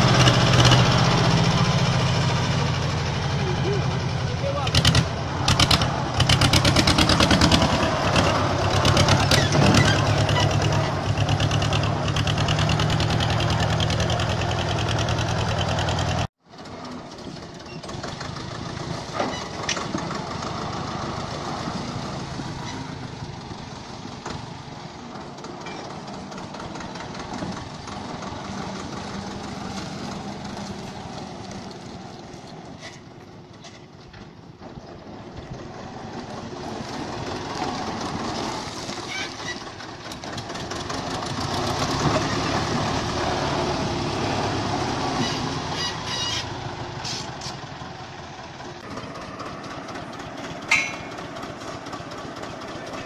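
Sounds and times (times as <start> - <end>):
tractor diesel engine running: 0.0 - 53.0
tractor driving: 0.0 - 53.0.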